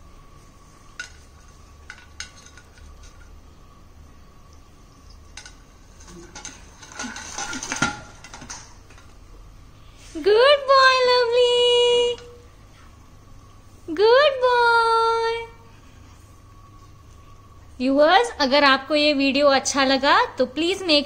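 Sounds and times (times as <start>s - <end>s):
can clattering on stone floor: 5.3s - 9.2s.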